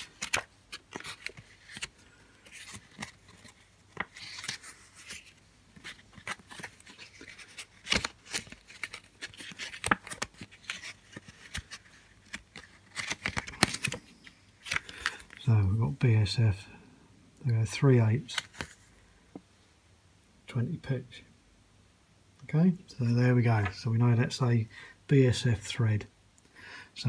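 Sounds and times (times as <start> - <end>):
paper pages rustling: 0.0 - 15.4, 18.3 - 19.0.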